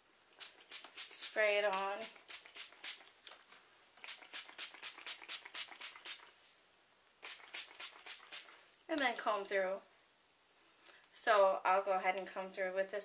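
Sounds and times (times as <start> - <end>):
pump spray bottle spritzing: 0.4 - 3.1, 4.0 - 6.3, 7.2 - 8.5.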